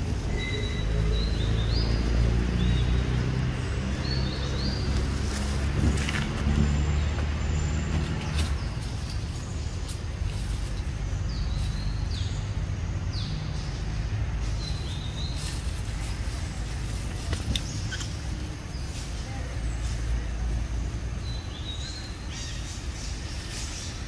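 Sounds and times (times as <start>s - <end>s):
bird chirps: 0.0s - 3.2s.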